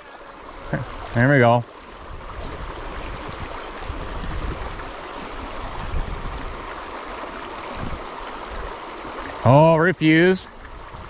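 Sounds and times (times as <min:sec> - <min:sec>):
river water rushing: 0:00.0 - 0:11.0
wind rumble on microphone: 0:01.9 - 0:09.4, 0:10.5 - 0:11.0.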